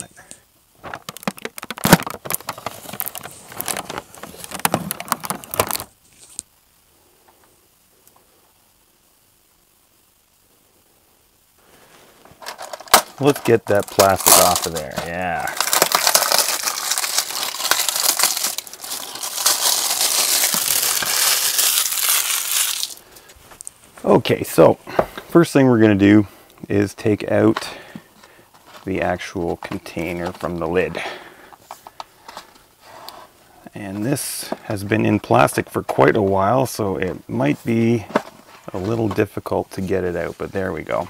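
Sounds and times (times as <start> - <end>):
plastic shrink wrap crinkling: 0.8 - 6.4, 11.8 - 24.0.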